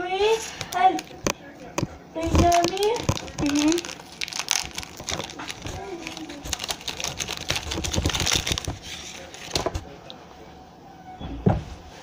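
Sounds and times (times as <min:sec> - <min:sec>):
plastic wrapper crinkling: 0:00.5 - 0:09.8
thump: 0:11.2 - 0:11.7.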